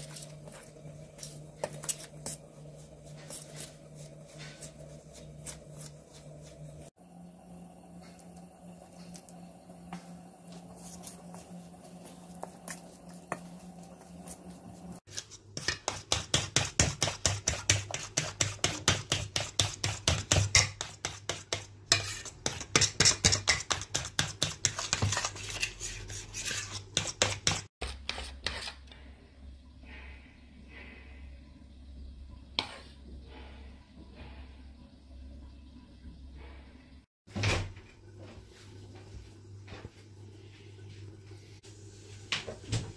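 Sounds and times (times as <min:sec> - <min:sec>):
batter beaten in metal bowl: 0:00.0 - 0:06.9, 0:09.9 - 0:28.9
faint hum: 0:00.0 - 0:15.0.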